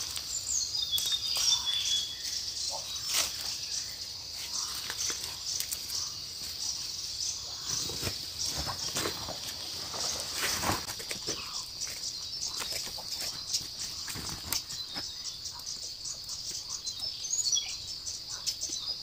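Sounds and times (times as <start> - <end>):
leafy greens snapping: 0.0 - 1.7, 4.6 - 6.0
dry leaves rustling underfoot: 0.0 - 6.8, 7.6 - 15.4
high insect chorus: 0.0 - 19.0.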